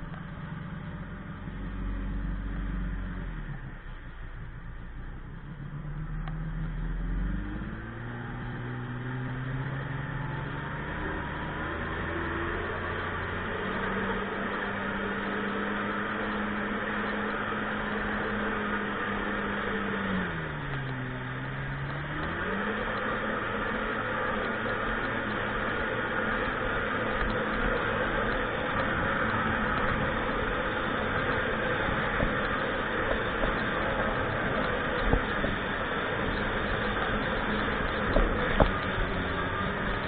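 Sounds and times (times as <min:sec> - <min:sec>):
wind: 0:00.0 - 0:40.0
watercraft engine running: 0:13.7 - 0:40.0
water noise: 0:16.2 - 0:40.0.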